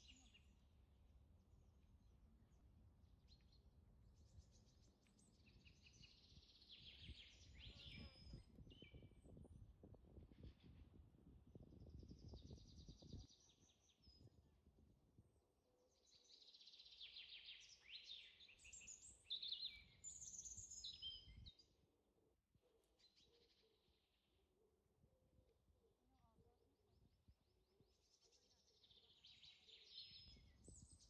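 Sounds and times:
small birds chirping: 0.0s - 0.6s, 3.1s - 9.5s, 11.8s - 14.3s, 15.9s - 21.8s, 27.5s - 31.0s.

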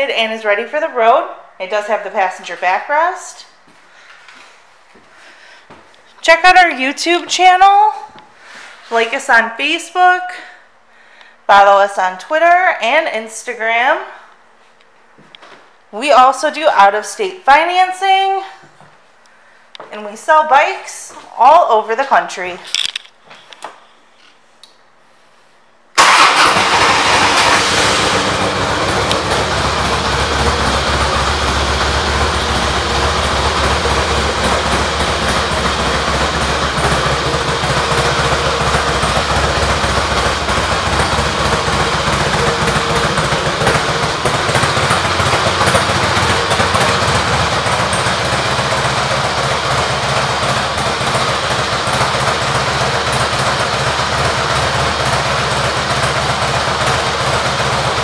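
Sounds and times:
motorcycle engine starting and idling: 26.0s - 58.0s.

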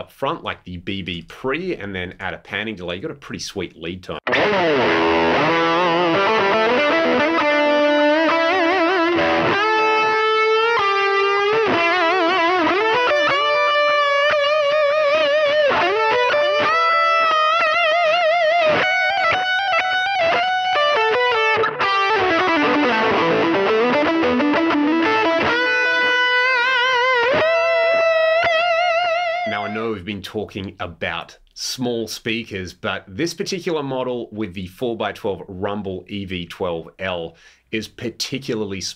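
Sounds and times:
overdriven electric guitar lead: 4.2s - 29.8s.

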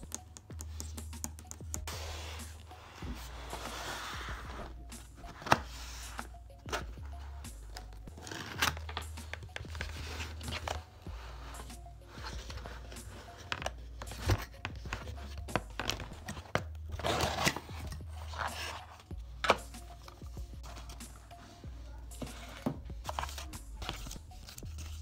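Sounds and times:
background music: 0.0s - 25.0s.

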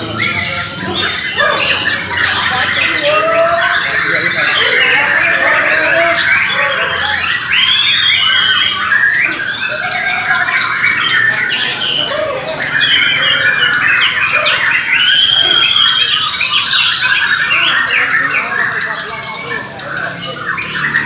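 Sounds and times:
birds singing whistled phrases: 0.0s - 21.0s.

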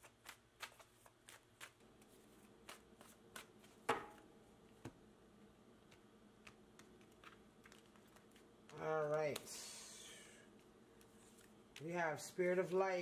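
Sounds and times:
playing cards being shuffled: 10.6s - 13.0s.

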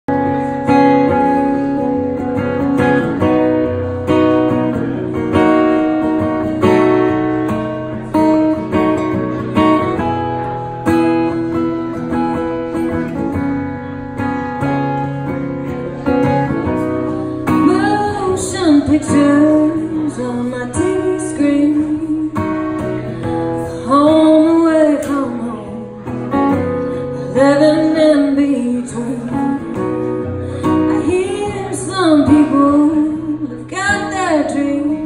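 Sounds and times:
acoustic guitar strumming chords: 0.1s - 35.0s
woman singing: 17.4s - 26.2s, 27.1s - 35.0s.

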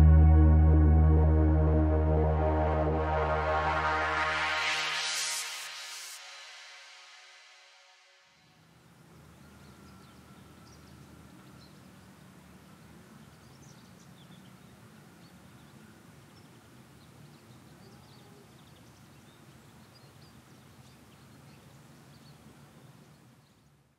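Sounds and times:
low steady rumble: 0.0s - 4.3s.

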